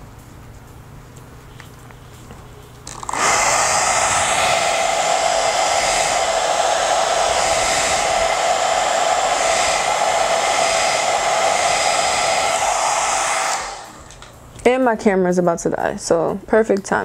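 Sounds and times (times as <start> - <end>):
hair dryer running: 2.9 - 14.4.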